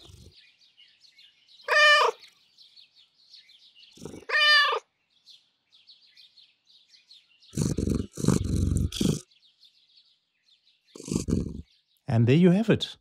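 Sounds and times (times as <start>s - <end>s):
cat purring: 0.0s - 0.4s, 7.6s - 9.2s, 11.0s - 11.6s
cat meowing: 1.7s - 2.2s, 4.2s - 4.8s.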